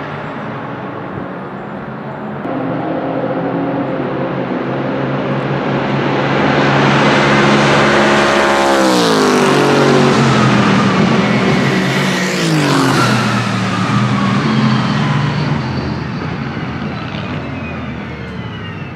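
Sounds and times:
racing car engine passing: 2.4 - 17.5.

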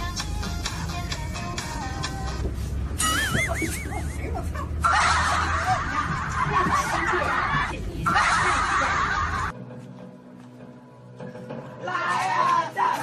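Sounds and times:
laughter: 3.0 - 9.5.

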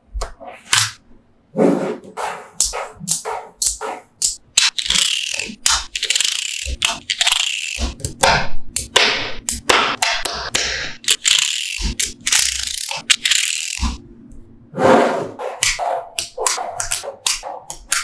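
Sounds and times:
magnetic balls clicking: 2.6 - 14.0.

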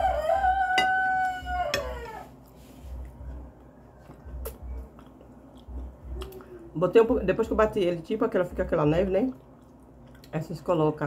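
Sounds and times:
rooster crowing: 0.0 - 2.4.

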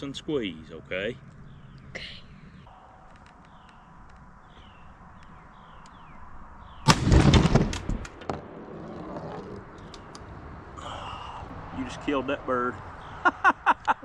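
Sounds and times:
shotgun blast: 6.8 - 8.2.

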